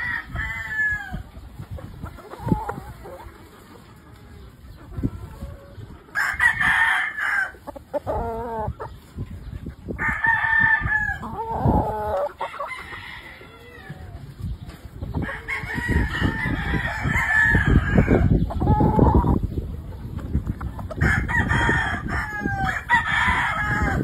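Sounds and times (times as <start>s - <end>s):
roosters crowing: 0.0s - 1.4s, 4.9s - 8.9s, 9.9s - 14.4s, 15.0s - 19.4s, 20.7s - 24.0s
rooster clucking: 0.0s - 14.3s, 14.9s - 24.0s.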